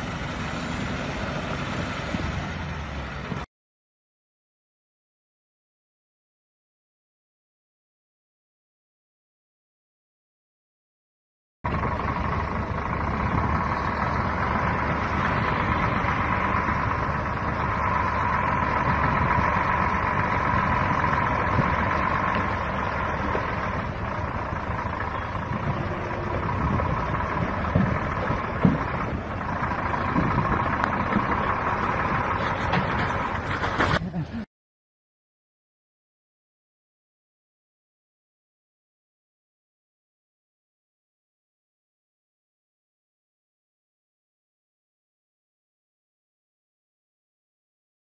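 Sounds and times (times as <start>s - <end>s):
truck engine running: 0.0s - 3.5s, 11.7s - 34.5s.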